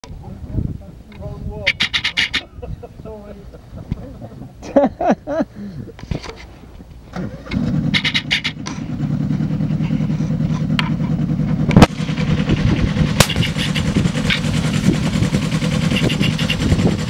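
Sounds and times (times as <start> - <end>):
locomotive motor droning: 6.8 - 17.0
sharp knocks: 13.2 - 14.6.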